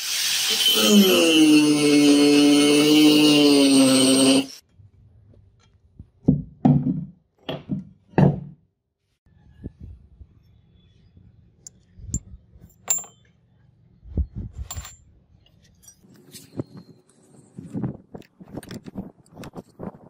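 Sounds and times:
metal pieces clinking on concrete: 0:12.1 - 0:13.4, 0:14.6 - 0:16.1.

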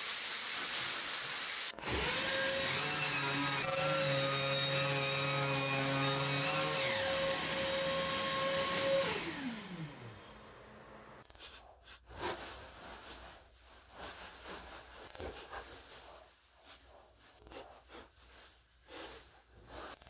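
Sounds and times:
orbital sander whine: 0:01.8 - 0:11.2
shop vacuum running: 0:01.8 - 0:11.2.

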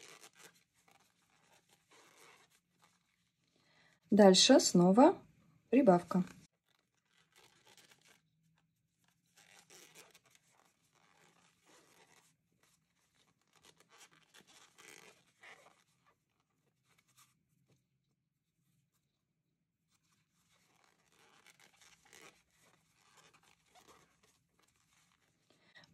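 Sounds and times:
yarn rustling on crochet hook: 0:00.0 - 0:03.6, 0:08.9 - 0:16.2, 0:20.1 - 0:25.9.

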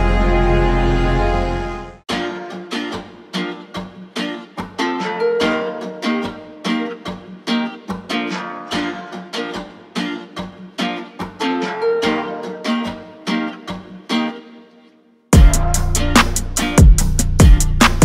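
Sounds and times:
plucked-string chords: 0:00.0 - 0:14.8, 0:15.4 - 0:18.0
music with drum beat: 0:15.4 - 0:18.0.

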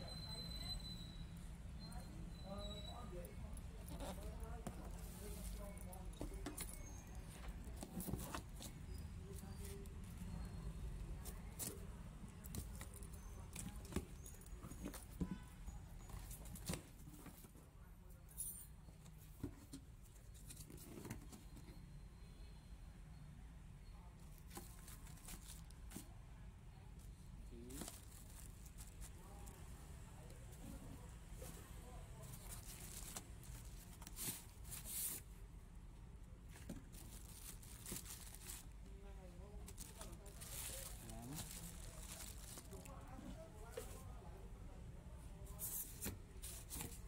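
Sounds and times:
plastic bags rustling: 0:27.6 - 0:29.4, 0:32.2 - 0:35.3, 0:36.4 - 0:43.2.

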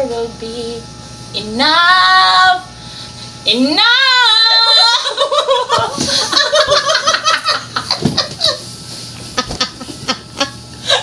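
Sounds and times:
women laughing: 0:05.0 - 0:11.0.

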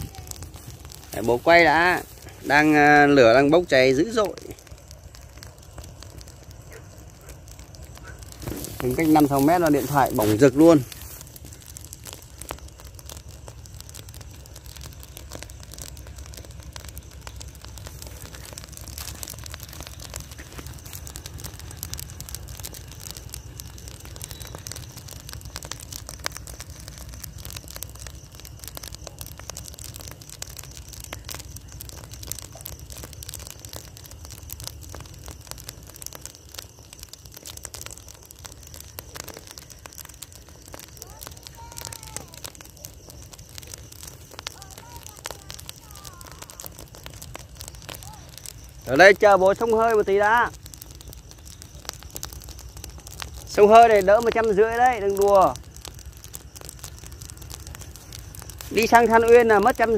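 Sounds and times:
fire low rumble: 0:00.0 - 0:59.9
straw fire crackling: 0:00.0 - 0:59.9.

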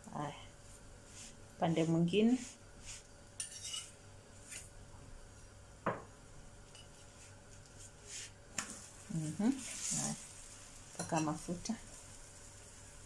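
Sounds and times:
metal spoon scraping flatbread in pan: 0:03.4 - 0:04.6.

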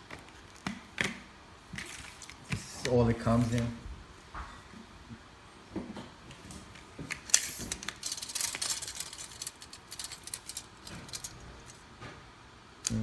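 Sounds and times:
metallic clicks and rattles: 0:07.3 - 0:11.8.

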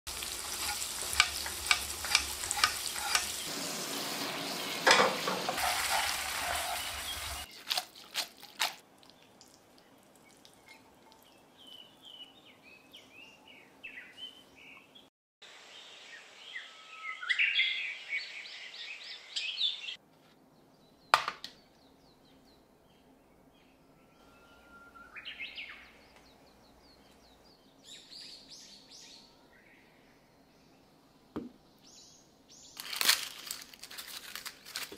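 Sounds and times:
fork stirring in metal pan: 0:00.1 - 0:03.5, 0:05.2 - 0:08.8
birds chirping: 0:00.1 - 0:07.5, 0:20.6 - 0:32.8
garlic and chilli sizzling in oil: 0:00.1 - 0:09.4.

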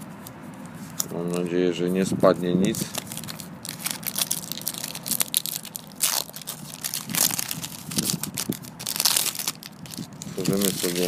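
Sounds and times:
wrapper crinkling: 0:02.8 - 0:11.0
wrapper ripping: 0:02.8 - 0:11.0.

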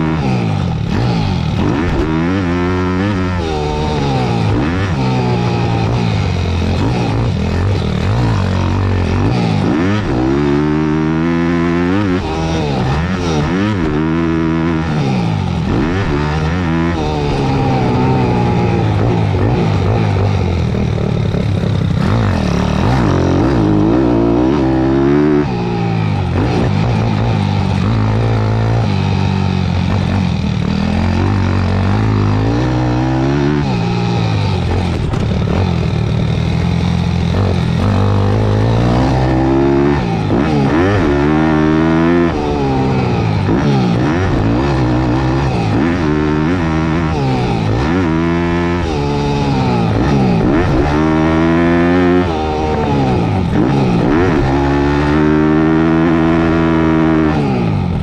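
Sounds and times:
motorbike engine revving: 0:00.0 - 0:58.0.

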